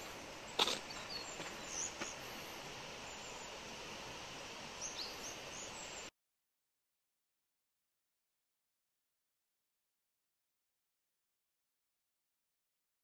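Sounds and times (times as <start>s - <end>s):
footsteps on gravel: 0.0s - 2.3s
small birds chirping: 0.0s - 6.1s
steady hiss: 0.0s - 6.1s.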